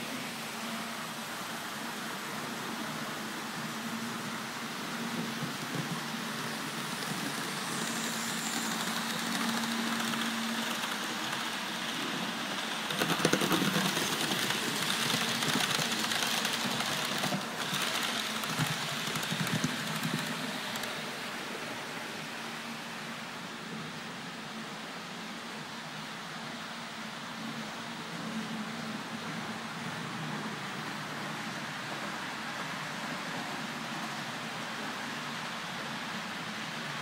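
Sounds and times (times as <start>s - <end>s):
background hiss: 0.0s - 37.0s
model train wheels clicking: 5.4s - 21.0s.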